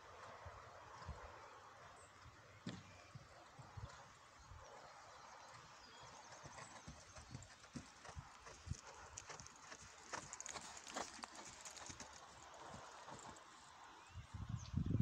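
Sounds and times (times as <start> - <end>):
horse hoofbeats on wood chips: 7.2 - 13.6.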